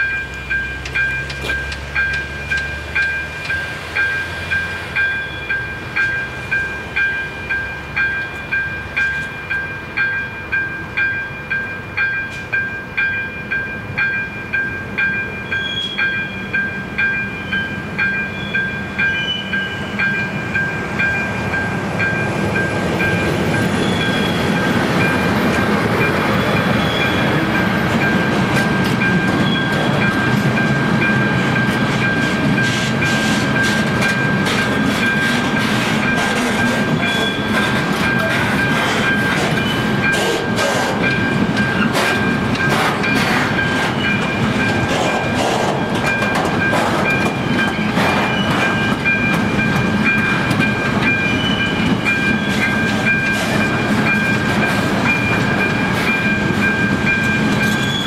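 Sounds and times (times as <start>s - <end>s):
diesel locomotive engine: 0.0s - 58.0s
train wheel noise: 0.0s - 58.0s.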